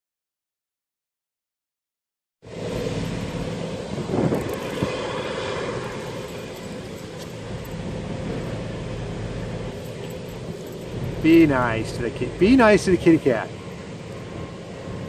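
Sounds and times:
low engine drone: 0:02.4 - 0:15.0
wind noise on microphone: 0:02.5 - 0:08.8.

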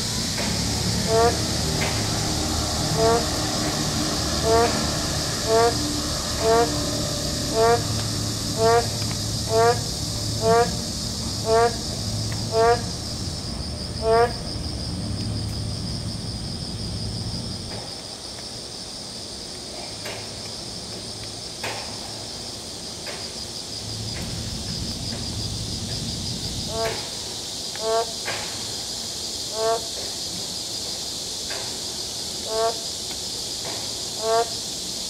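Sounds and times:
high-pitched insect drone: 0:00.0 - 0:17.9, 0:23.1 - 0:35.0
frog nasal calls: 0:00.8 - 0:14.6, 0:26.6 - 0:27.1, 0:27.8 - 0:28.2, 0:29.5 - 0:29.9, 0:32.4 - 0:32.9, 0:34.2 - 0:34.6.

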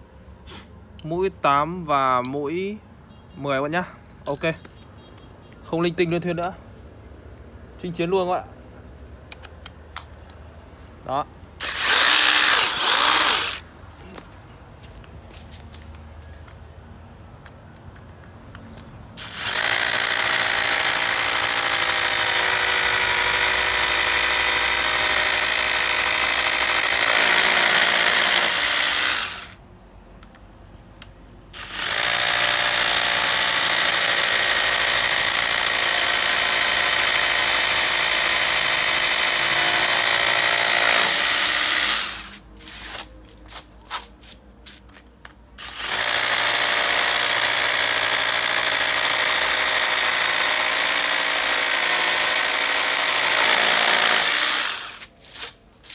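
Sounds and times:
drill trigger pulses: 0:11.6 - 0:13.6, 0:19.2 - 0:29.6
rotary hammer drilling into concrete: 0:11.6 - 0:13.6, 0:19.2 - 0:29.6, 0:31.6 - 0:42.4, 0:45.6 - 0:55.1.

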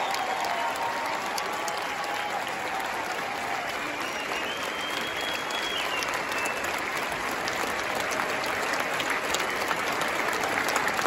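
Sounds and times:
audience applauding: 0:00.0 - 0:11.0
high whistle: 0:04.0 - 0:06.7.

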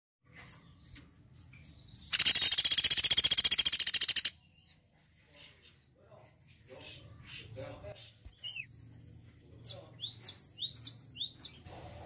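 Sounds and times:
woodpecker rattling call: 0:02.0 - 0:04.4.

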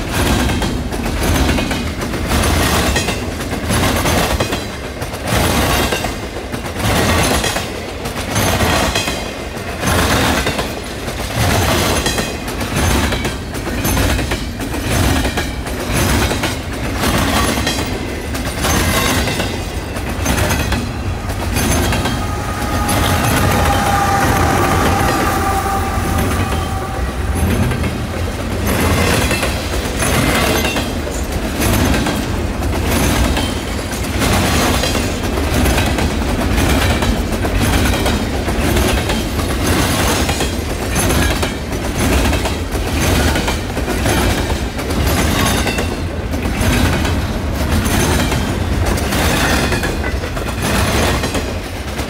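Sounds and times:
steel wheels rumbling on rail: 0:00.0 - 0:52.0
wheels clickety-clack on track: 0:00.0 - 0:52.0.

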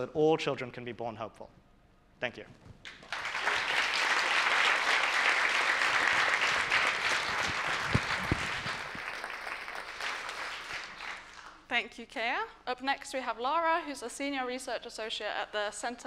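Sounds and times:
audience applauding: 0:02.9 - 0:11.6.

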